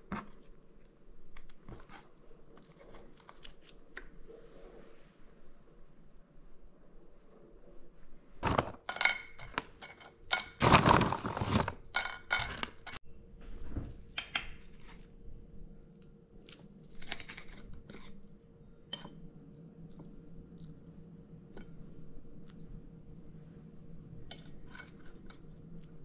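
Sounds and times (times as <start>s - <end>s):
plastic bag rustling and crinkling: 10.6s - 13.0s.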